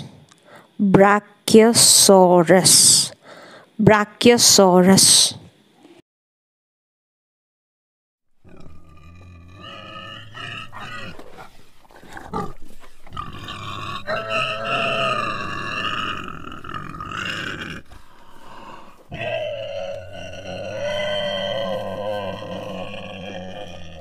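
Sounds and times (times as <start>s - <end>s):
dinosaur roar: 8.4s - 24.0s.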